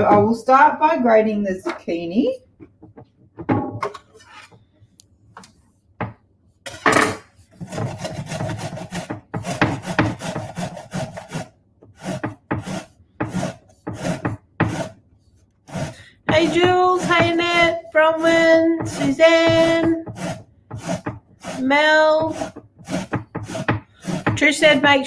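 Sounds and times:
grating on a metal grater: 7.6s - 15.0s, 15.7s - 25.0s.

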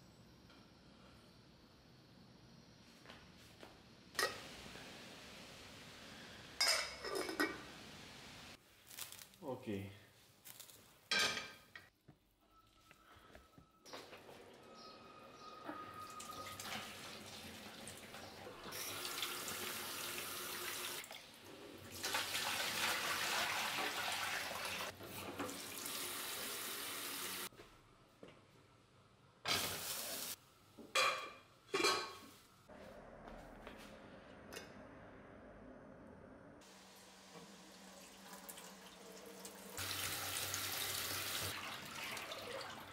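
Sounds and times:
metal pot clanking: 6.6s - 7.7s
water pouring into a sink: 16.0s - 27.4s, 37.5s - 42.9s.

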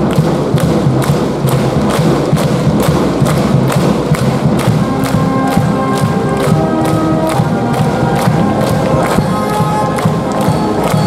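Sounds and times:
hand claps and percussion hits: 0.0s - 11.0s
brass band held notes: 3.7s - 11.0s.

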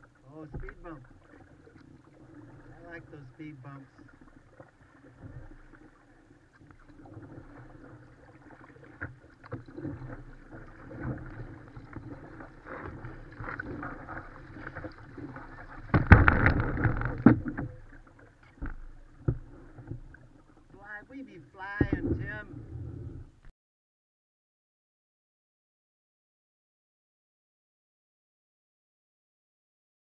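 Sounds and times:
paddle splashing in water: 0.0s - 23.4s
paddle knocking on kayak: 0.5s - 1.4s, 8.7s - 20.9s, 21.6s - 22.5s.

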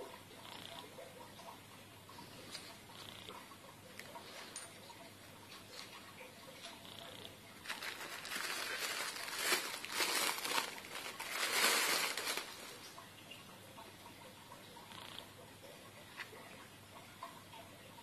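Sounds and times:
plastic packaging crinkling: 7.6s - 12.9s.

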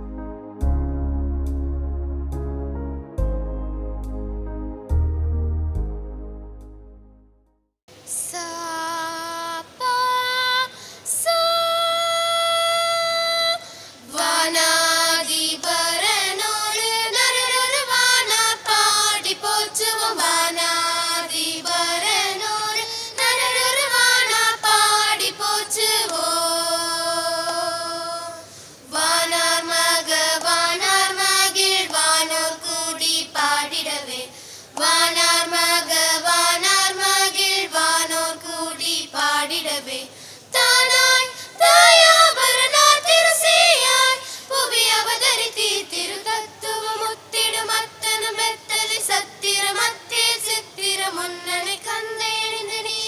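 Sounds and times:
children singing a carol: 14.1s - 53.0s.

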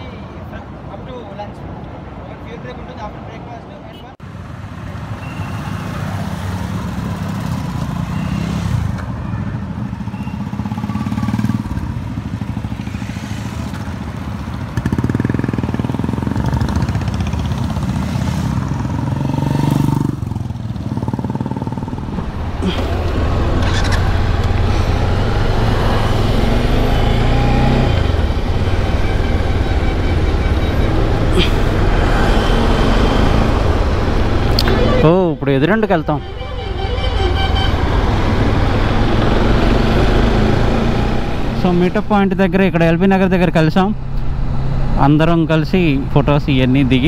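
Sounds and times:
motorcycles riding past: 4.7s - 35.2s
motorcycle engine at road speed: 6.0s - 35.0s.

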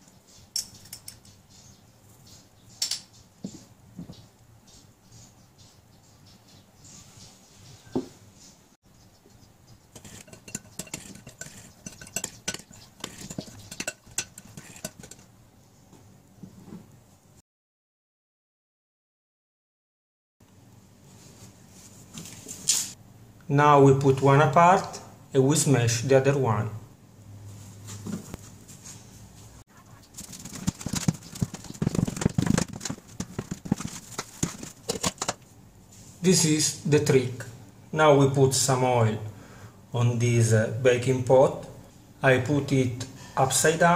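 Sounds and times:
metal spoon scraping ceramic bowl: 9.9s - 15.3s
hands patting dough: 30.0s - 35.4s.

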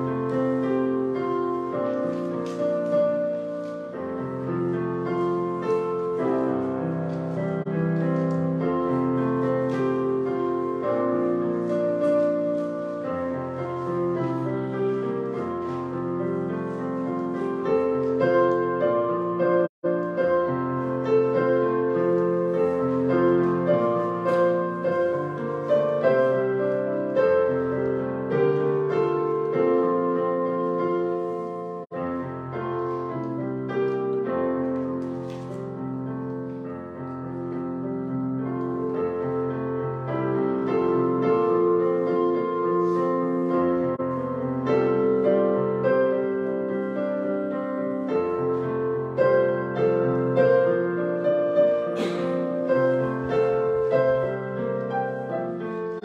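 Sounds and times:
slow piano chords: 0.0s - 56.0s.

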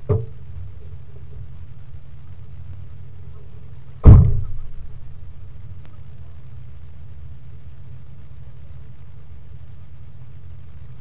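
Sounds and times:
engine low rumble: 0.0s - 11.0s
loud sudden thud: 4.0s - 5.0s.

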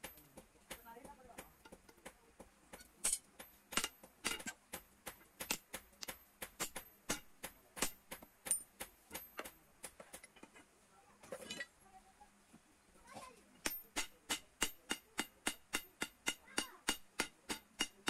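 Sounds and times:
hammer striking hot iron on anvil: 2.7s - 9.5s, 13.6s - 18.0s.

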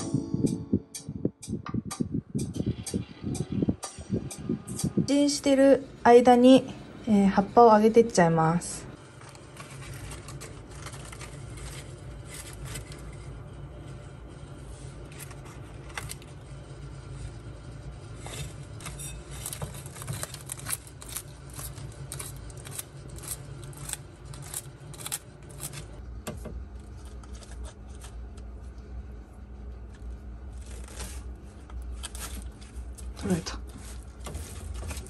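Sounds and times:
steady low hum: 0.0s - 35.0s
lizard crunching leafy greens: 9.1s - 13.4s, 18.2s - 26.0s, 29.8s - 35.0s.

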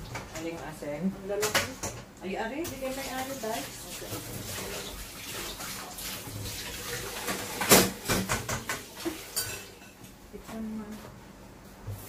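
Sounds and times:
broth hissing in a pot: 2.8s - 7.7s.

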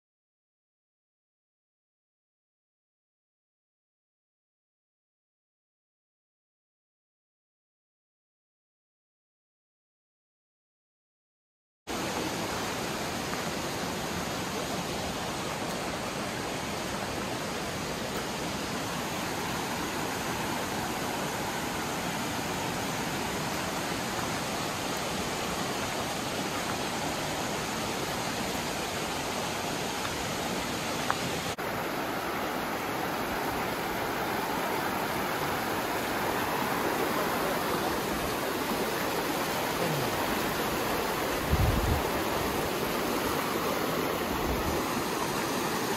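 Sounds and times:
creek rushing over stones: 11.9s - 45.9s.

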